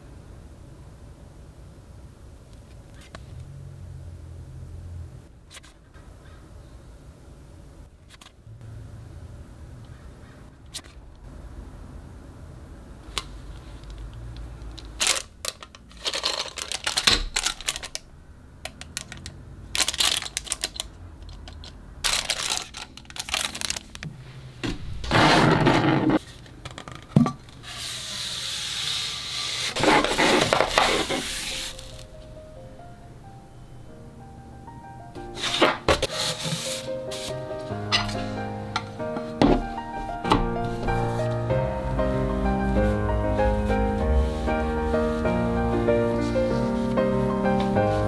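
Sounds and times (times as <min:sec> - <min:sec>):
plastic packaging crinkling: 0:14.7 - 0:18.1, 0:18.8 - 0:24.1, 0:29.6 - 0:32.1
paper poster rustling: 0:14.8 - 0:18.0, 0:19.8 - 0:26.6, 0:27.6 - 0:32.1, 0:35.4 - 0:41.6, 0:42.6 - 0:48.0.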